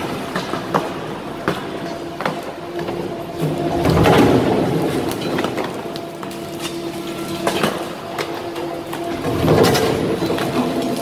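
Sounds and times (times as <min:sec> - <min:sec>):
machine hum: 0:00.0 - 0:11.0
concrete cracking and crunching: 0:03.4 - 0:11.0.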